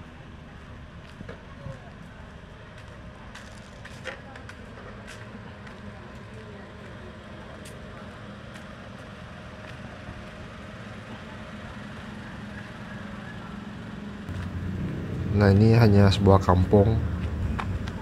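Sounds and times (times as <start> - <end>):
motor traffic: 0.0 - 18.0
low hum: 14.3 - 18.0.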